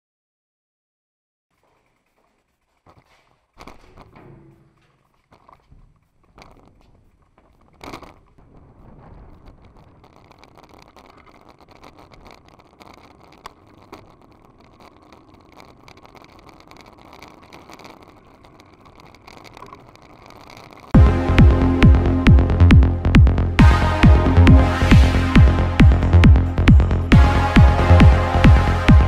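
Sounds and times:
bicycle rolling over asphalt: 1.5s - 29.0s
bicycle bump: 1.6s - 21.1s.

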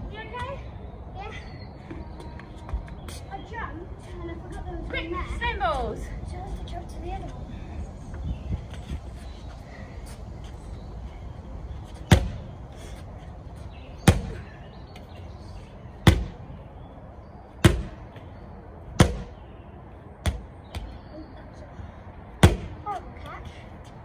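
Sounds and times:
medicine ball thudding on wooden decking: 12.0s - 12.5s, 16.0s - 16.4s, 17.6s - 18.0s.

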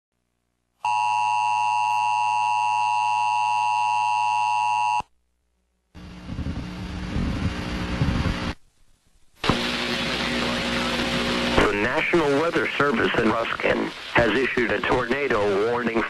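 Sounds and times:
dual-tone alarm: 0.8s - 5.0s
rough hiss with low hum: 5.2s - 16.0s.

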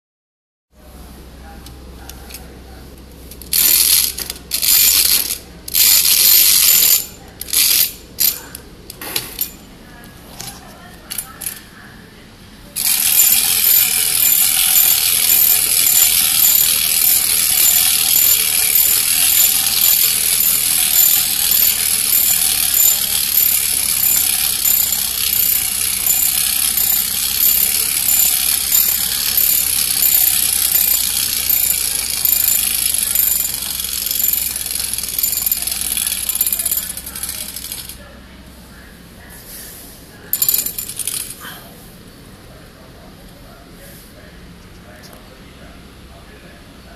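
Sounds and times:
clockwork gear whirr: 3.4s - 8.4s, 12.8s - 38.0s, 40.3s - 41.4s
high repeating click: 12.8s - 37.9s.

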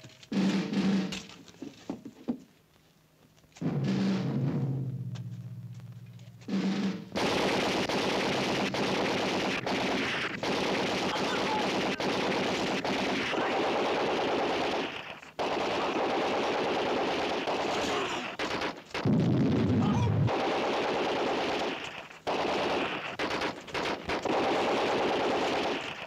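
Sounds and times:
automatic gunfire bursts: 6.5s - 26.0s.

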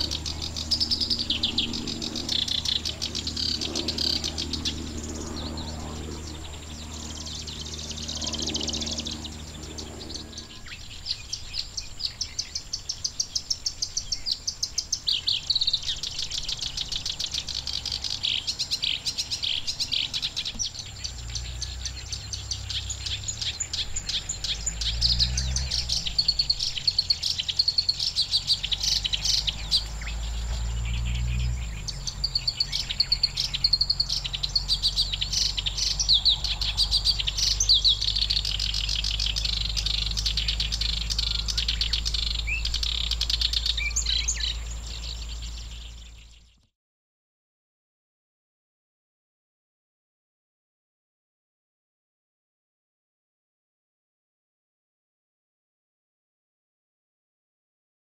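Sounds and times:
warbler singing rapid high notes: 0.0s - 46.6s.

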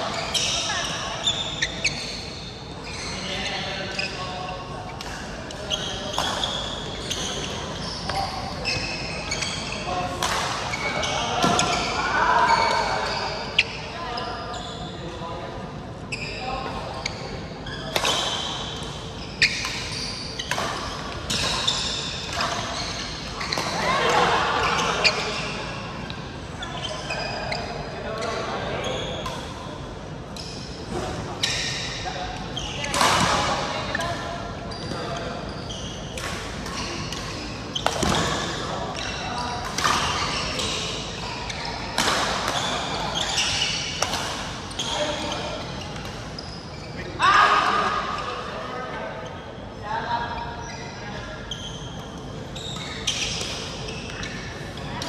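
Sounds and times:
shoe squeaks: 0.0s - 15.1s, 16.1s - 29.4s, 30.4s - 48.4s, 49.0s - 55.0s.

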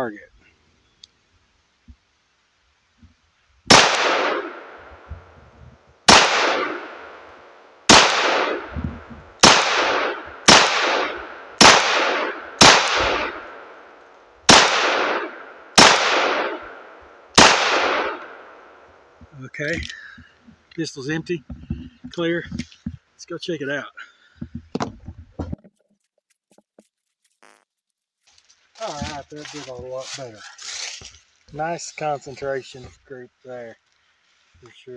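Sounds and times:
pistol shots with ringing tail: 3.7s - 5.1s, 6.1s - 8.8s, 9.4s - 13.9s, 14.5s - 18.6s.

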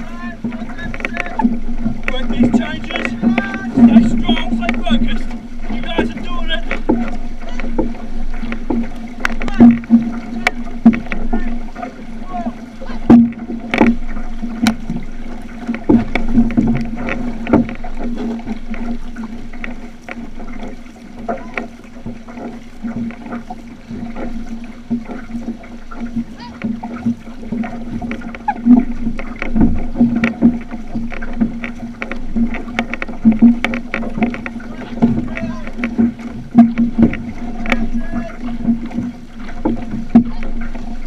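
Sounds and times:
paddle splashes: 0.0s - 41.0s
water rushing along hull: 0.0s - 41.0s.

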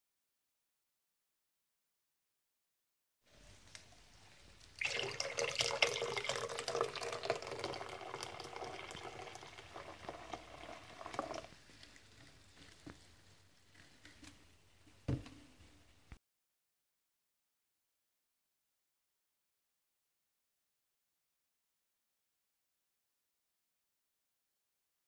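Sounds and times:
water pouring and fizzing: 4.4s - 13.0s
bubbles crackling: 4.7s - 12.2s.

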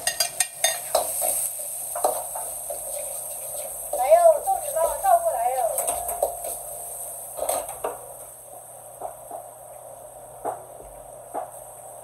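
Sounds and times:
kitchen hum: 0.0s - 12.0s
kitchenware knocks and clinks: 5.8s - 6.6s.

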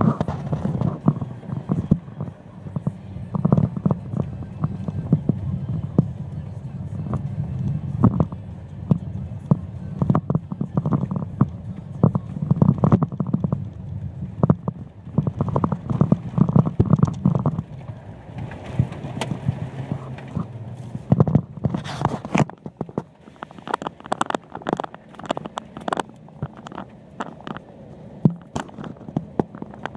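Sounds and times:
engine and tyres rumbling: 0.0s - 29.9s
muddy water splashing windshield: 0.0s - 29.9s
knocks and rattles: 8.0s - 29.9s.

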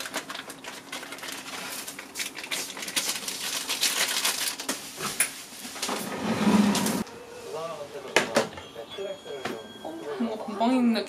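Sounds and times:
packaging crinkling and rustling: 0.0s - 6.0s.

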